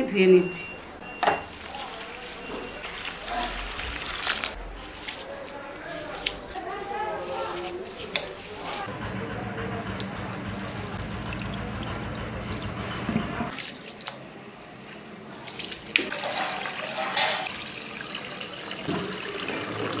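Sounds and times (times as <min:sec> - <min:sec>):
rice washed by hand in water: 0:01.4 - 0:08.9, 0:09.8 - 0:12.7, 0:15.3 - 0:20.0.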